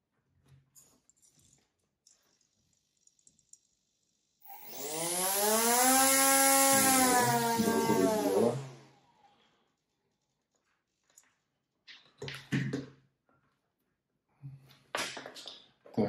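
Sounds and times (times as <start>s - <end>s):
electric motor whine: 4.4s - 8.8s.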